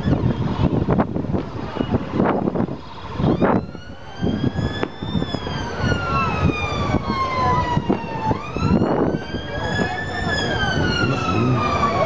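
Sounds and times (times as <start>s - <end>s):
emergency vehicle siren wailing: 1.6s - 12.0s
cars driving past: 8.3s - 12.0s.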